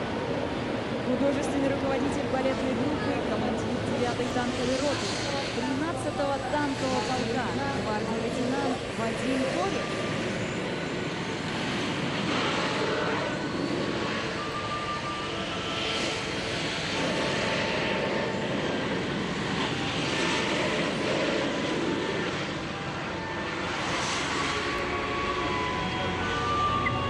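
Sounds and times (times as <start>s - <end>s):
tank turbine engine whine: 0.0s - 27.0s.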